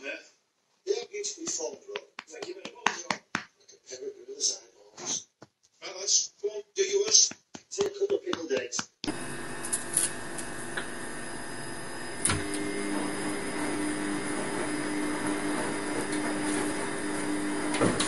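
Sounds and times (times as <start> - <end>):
machine hum with faint whine: 9.1 - 14.4.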